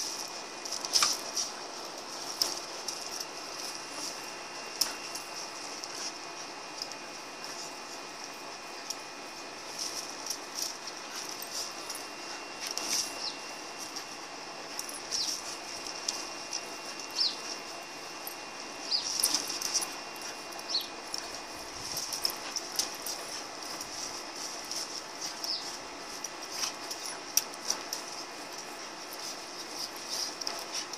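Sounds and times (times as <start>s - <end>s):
dogs scuffling and mouthing: 0.0s - 30.9s
metal chain jingling: 16.8s - 30.9s.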